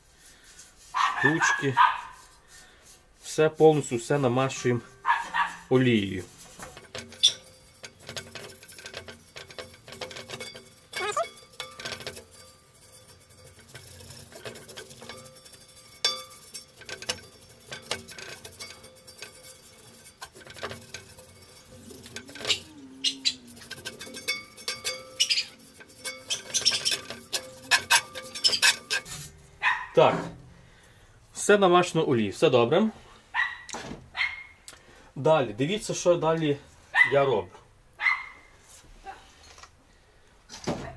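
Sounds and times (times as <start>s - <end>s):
brush scraping cast-iron skillet: 0.0s - 30.9s.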